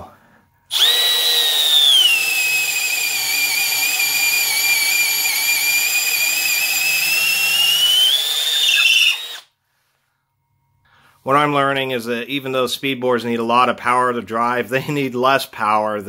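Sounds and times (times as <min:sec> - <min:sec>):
cordless drill boring into wood: 0:00.7 - 0:09.5.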